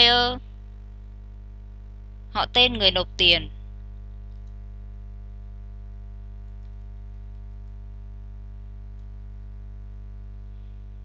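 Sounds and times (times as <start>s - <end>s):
mains hum: 0.0s - 11.0s
faint ticks: 4.1s - 5.0s, 6.2s - 8.0s, 8.6s - 9.4s.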